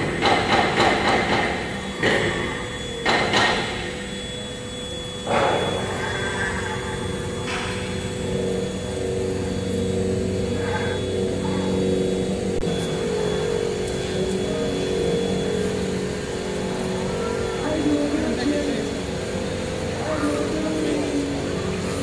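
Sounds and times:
router spindle humming: 0:00.0 - 0:22.0.

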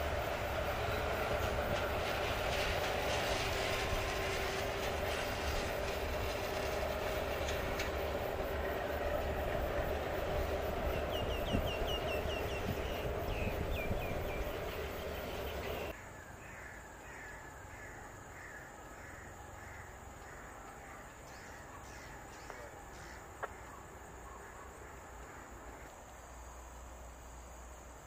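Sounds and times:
distant train rumbling: 0:00.0 - 0:28.0
bird calling: 0:10.5 - 0:25.9.

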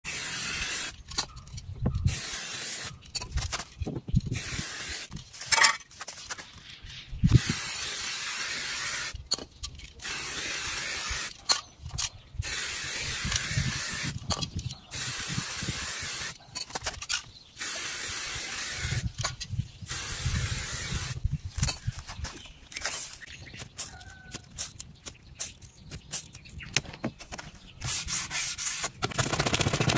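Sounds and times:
spray paint can hissing: 0:00.1 - 0:01.0, 0:02.1 - 0:03.0, 0:04.3 - 0:05.2, 0:07.3 - 0:09.2, 0:10.0 - 0:11.4, 0:12.4 - 0:14.2, 0:14.9 - 0:16.4, 0:17.6 - 0:19.2, 0:19.9 - 0:21.2.

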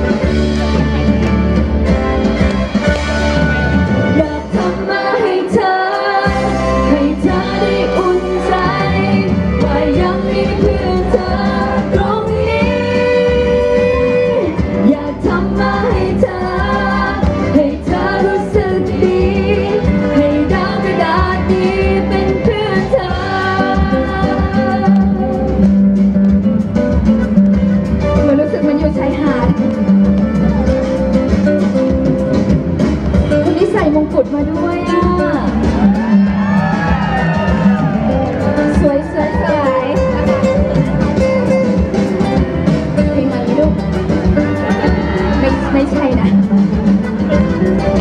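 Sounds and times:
instrumental accompaniment: 0:00.0 - 0:48.0
woman singing into microphone: 0:04.1 - 0:25.7, 0:38.6 - 0:40.3.

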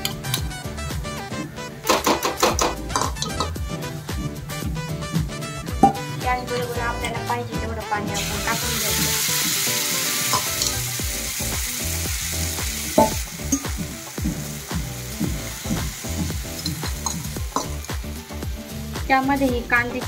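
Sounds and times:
batter sizzling in hot oil: 0:08.2 - 0:19.7.

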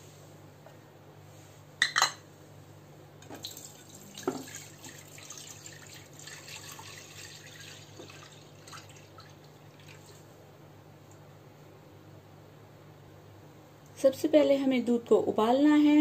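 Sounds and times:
milk pouring and splashing: 0:03.2 - 0:10.3.

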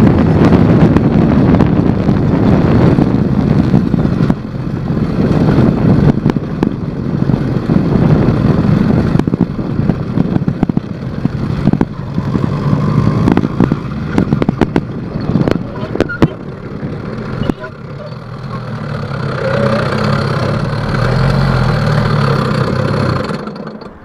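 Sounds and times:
knocks and rattles: 0:01.6 - 0:24.0
small engine revving: 0:11.4 - 0:24.0.

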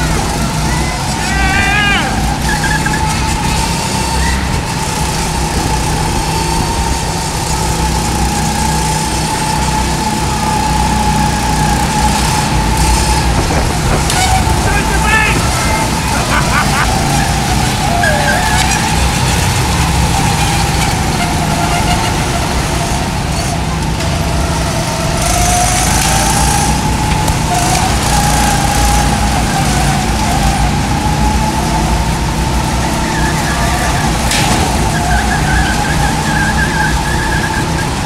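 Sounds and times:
go-kart motor whine: 0:00.0 - 0:38.0
tyre and wind rumble: 0:11.3 - 0:38.0.

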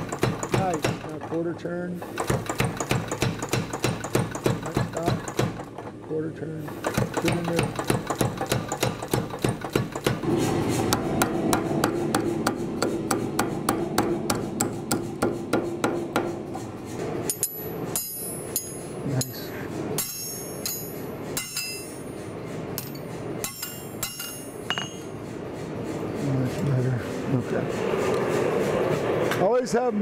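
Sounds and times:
power hammer pounding steel: 0:00.0 - 0:05.9, 0:06.6 - 0:22.1, 0:22.8 - 0:25.1
hand hammer ringing on anvil: 0:17.3 - 0:19.4, 0:20.0 - 0:22.0, 0:22.8 - 0:25.1.

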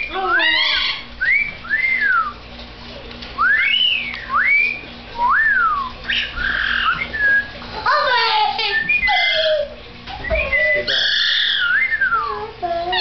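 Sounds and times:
parrot whistling swooping notes: 0:03.4 - 0:07.6, 0:08.5 - 0:12.3.

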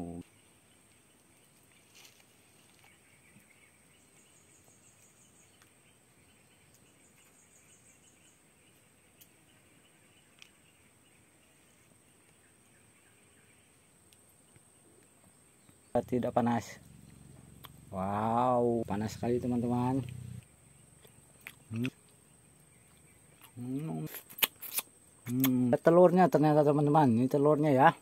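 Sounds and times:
insect buzz and chirring: 0:00.0 - 0:28.0
insect pulsing trills: 0:15.9 - 0:25.8
faint ticks: 0:20.0 - 0:22.2.

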